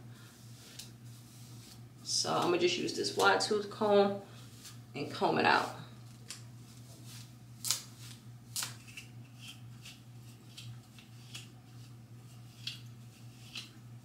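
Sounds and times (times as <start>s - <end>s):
low steady hum: 0.0s - 14.0s
comb rasping through wet hair: 0.4s - 3.5s, 9.3s - 13.9s.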